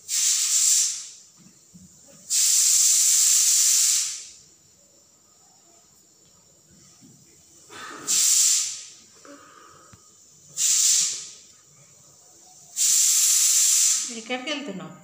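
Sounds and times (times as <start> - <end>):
loud hissing bursts: 0.0 - 4.7, 7.5 - 11.5, 12.5 - 14.3.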